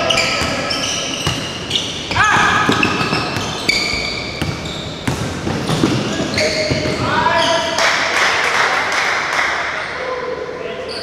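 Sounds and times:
sneakers squeaking: 0.0 - 7.8, 10.8 - 11.0
basketball bouncing on hardwood: 4.4 - 7.0.

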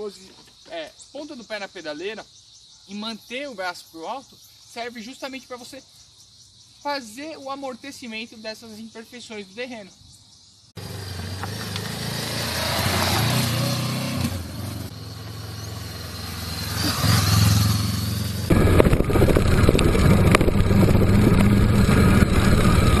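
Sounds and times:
motorcycle engine revving: 10.8 - 23.0
rough engine with knocks: 18.5 - 23.0.

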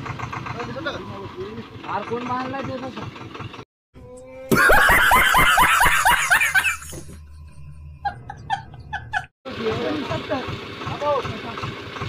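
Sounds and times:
man laughing loudly: 4.5 - 7.1, 8.1 - 9.3.

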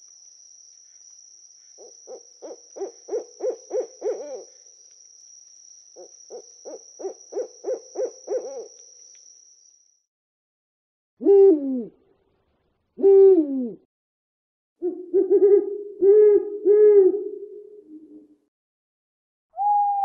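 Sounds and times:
owl hooting: 1.8 - 4.7, 6.0 - 8.8, 13.0 - 13.8, 14.8 - 17.4, 19.6 - 20.0.

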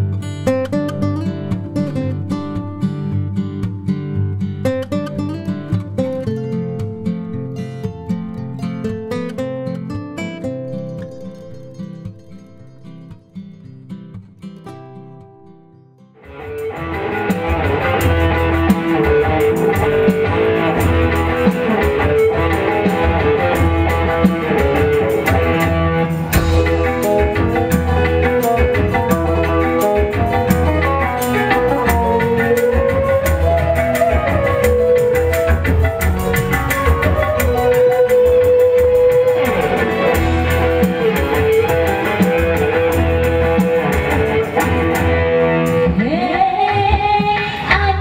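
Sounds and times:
soft plucked guitar notes: 0.0 - 48.0
band playing with drums: 16.3 - 48.0.

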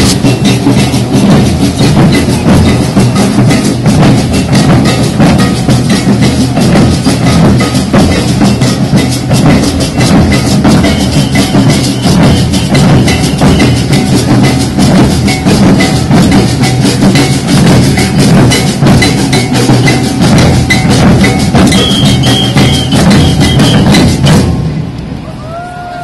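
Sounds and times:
bass drums beating: 0.0 - 26.0
short high ringing tones: 20.7 - 24.2.

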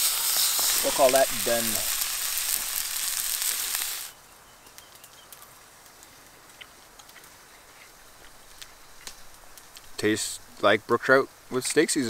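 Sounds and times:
fish sizzling in a pan: 0.0 - 4.2.

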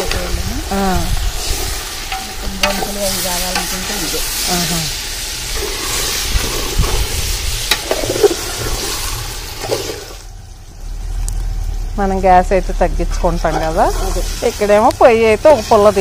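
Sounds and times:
chicken sizzling in hot oil: 0.0 - 11.9, 13.3 - 16.0
metal spoon stirring: 1.5 - 4.4.

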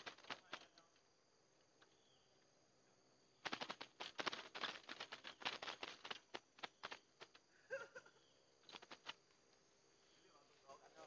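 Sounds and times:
birds making harsh rattling clicks: 0.0 - 2.5, 3.4 - 7.6, 8.2 - 9.6.

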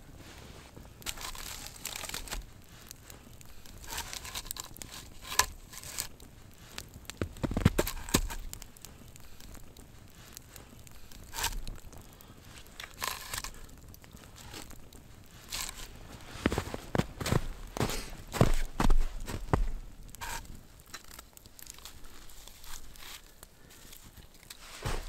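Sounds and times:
campfire crackling: 0.0 - 25.0
rustling: 0.0 - 25.0
boots crunching in snow: 15.5 - 20.4, 24.6 - 25.0.

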